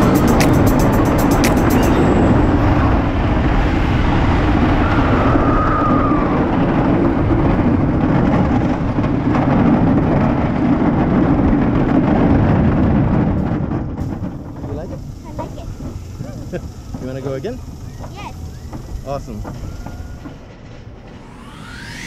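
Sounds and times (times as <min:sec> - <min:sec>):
roller coaster rumbling and rattling: 0:00.0 - 0:22.0.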